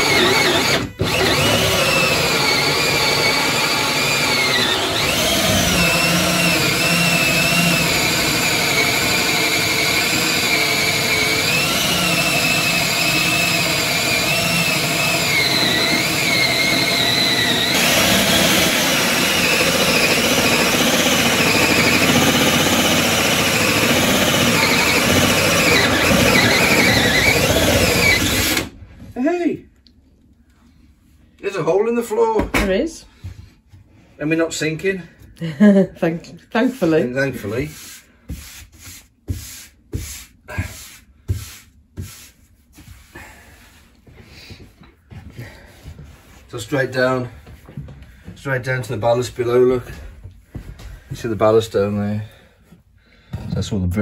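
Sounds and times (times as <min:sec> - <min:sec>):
drill whirring: 0:00.0 - 0:28.8
hole saw squealing through laminate: 0:00.0 - 0:28.8.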